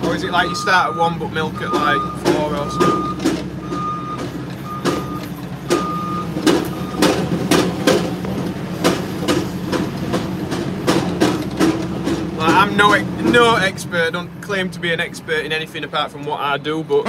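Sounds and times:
tractor engine running: 0:00.0 - 0:17.0
electronic beep: 0:00.3 - 0:07.0
sharp knocks and rattles: 0:01.7 - 0:13.7.

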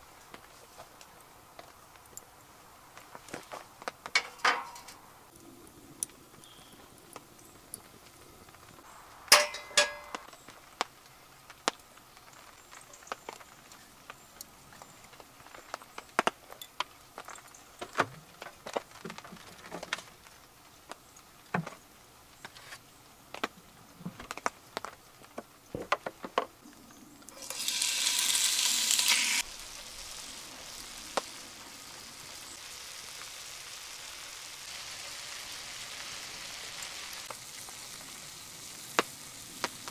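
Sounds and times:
camp gear clicks and knocks: 0:03.2 - 0:05.0
chicken sizzling in skillet: 0:06.2 - 0:11.5, 0:27.3 - 0:39.9.

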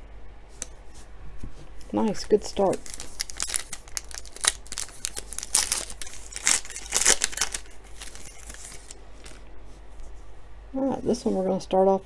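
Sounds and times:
foil wrapper crinkling and tearing: 0:02.0 - 0:09.5.

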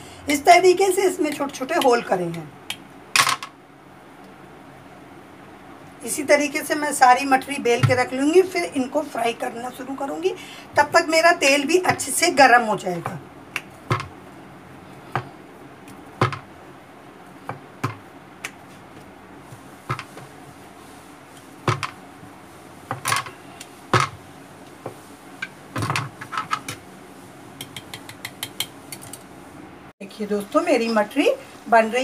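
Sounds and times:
rolling pin knocking on board: 0:13.9 - 0:14.1, 0:16.2 - 0:16.5, 0:19.9 - 0:20.3, 0:21.6 - 0:22.0, 0:23.9 - 0:24.2
knife tapping on board: 0:27.6 - 0:28.7.

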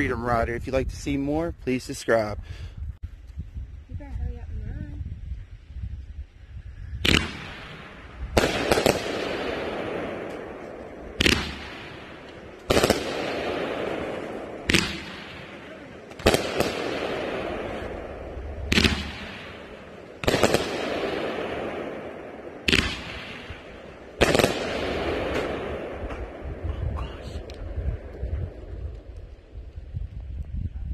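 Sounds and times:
firework shots banging: 0:07.0 - 0:26.7
rush of firework bursts: 0:07.0 - 0:27.4.

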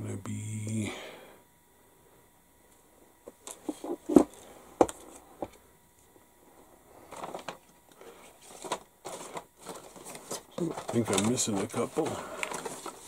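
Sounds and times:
tools handling and rustling: 0:03.3 - 0:05.6, 0:07.0 - 0:13.0.

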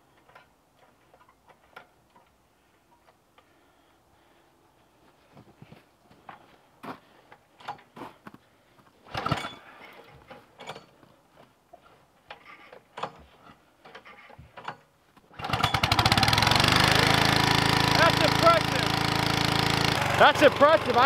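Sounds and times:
small gas engine running: 0:15.3 - 0:21.0.

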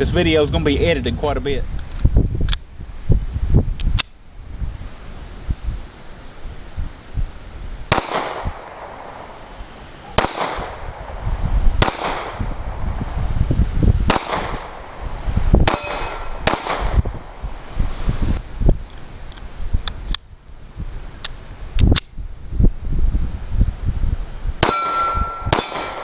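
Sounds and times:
pistol shots: 0:07.9 - 0:09.2, 0:10.1 - 0:11.1, 0:11.8 - 0:12.4, 0:14.1 - 0:14.8, 0:15.6 - 0:17.2, 0:24.6 - 0:26.0
metallic ring: 0:15.7 - 0:16.4, 0:24.6 - 0:26.0.

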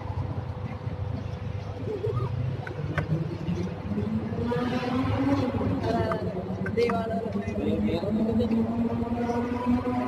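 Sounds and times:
low street rumble: 0:00.0 - 0:10.0.

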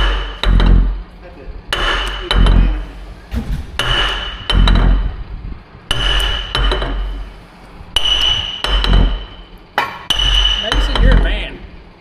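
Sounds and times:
hammer striking metal rod: 0:00.0 - 0:01.0, 0:01.7 - 0:02.8, 0:03.8 - 0:05.1, 0:05.9 - 0:07.3, 0:08.0 - 0:11.5.

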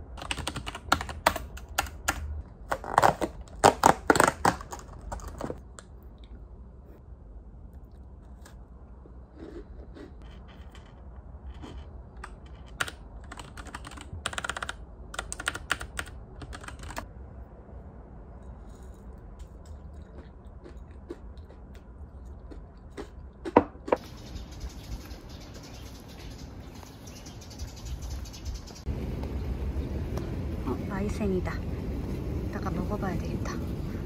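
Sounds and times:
computer keyboard typing: 0:00.2 - 0:02.3, 0:12.2 - 0:17.1.

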